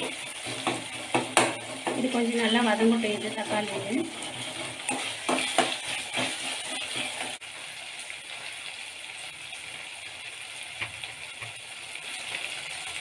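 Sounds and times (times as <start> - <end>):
metal spatula scraping pan: 0.0 - 7.4
vegetables sizzling in hot oil: 0.0 - 13.0.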